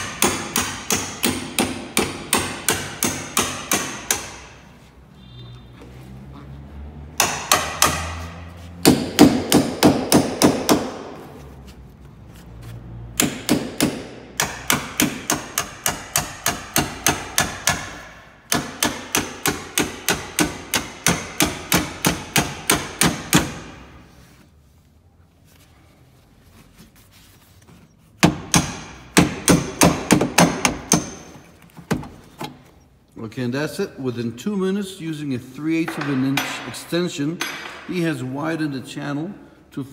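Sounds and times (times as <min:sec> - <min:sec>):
hammer striking metal: 0:07.2 - 0:11.1, 0:35.9 - 0:38.1.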